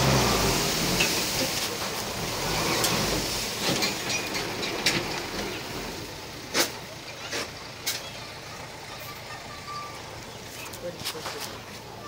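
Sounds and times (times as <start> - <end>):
heavy machinery hiss and rumble: 0.0 - 9.3.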